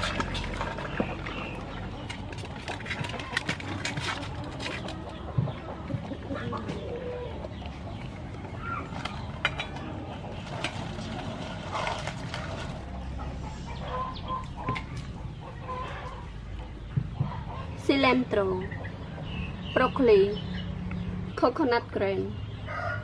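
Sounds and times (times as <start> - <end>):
chickens clucking: 0.0 - 23.0
light clicks and scrapes: 2.0 - 5.2.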